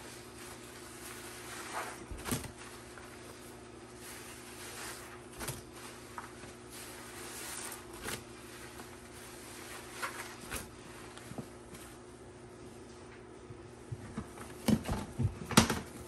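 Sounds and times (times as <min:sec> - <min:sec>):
wet sponge squishing: 0:00.0 - 0:11.2.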